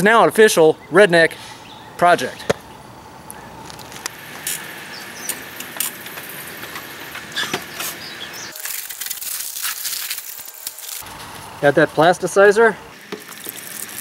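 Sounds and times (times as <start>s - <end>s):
outdoor ambience: 0.0s - 14.0s
dry concrete mix pouring: 8.5s - 11.1s, 12.9s - 14.0s.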